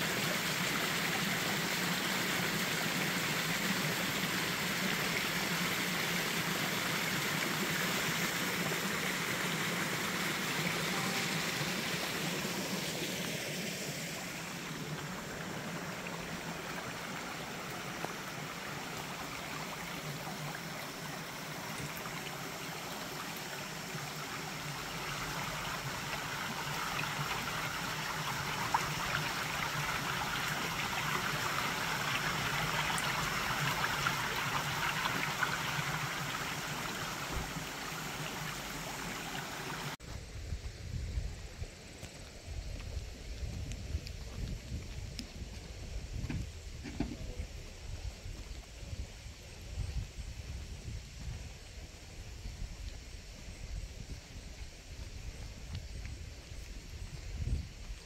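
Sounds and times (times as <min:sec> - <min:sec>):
stream running over rocks: 0:00.0 - 0:40.1.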